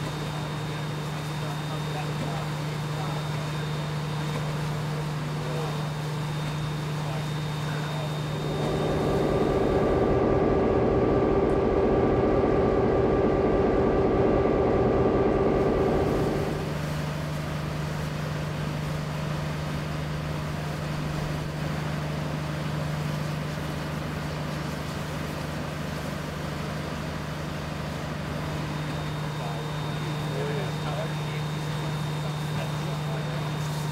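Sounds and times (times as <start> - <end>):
locomotive humming: 7.7 - 17.3
rough rumble: 8.4 - 17.0.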